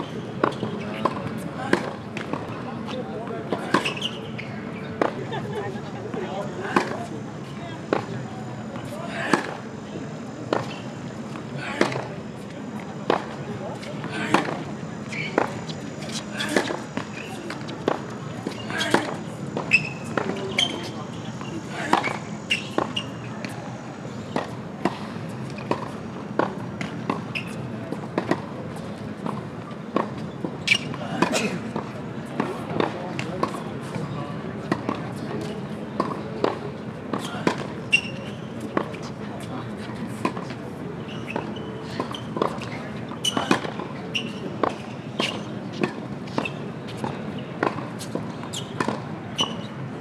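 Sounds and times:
tennis balls struck by rackets: 0:00.4 - 0:02.5, 0:06.2 - 0:07.1, 0:08.8 - 0:09.6, 0:10.5 - 0:12.1, 0:13.1 - 0:28.5, 0:29.2 - 0:34.0, 0:36.0 - 0:39.2, 0:41.2 - 0:49.7
tennis balls bouncing on court: 0:00.4 - 0:05.4, 0:06.1 - 0:09.6, 0:10.5 - 0:12.1, 0:13.1 - 0:34.0, 0:34.6 - 0:49.7.

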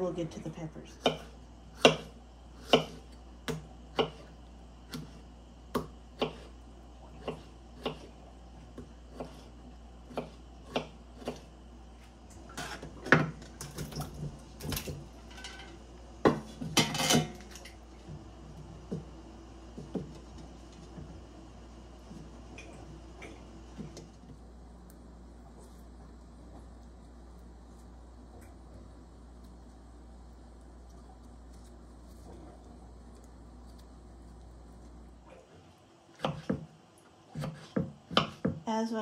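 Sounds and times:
knife chopping on wooden board: 0:01.0 - 0:04.3, 0:04.9 - 0:06.6, 0:07.2 - 0:08.1, 0:08.7 - 0:09.5, 0:10.1 - 0:11.5, 0:36.2 - 0:36.7, 0:37.3 - 0:38.6.

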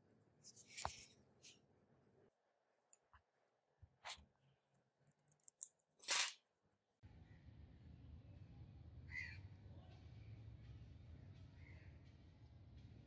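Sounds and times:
small metal clicks: 0:05.0 - 0:06.4.

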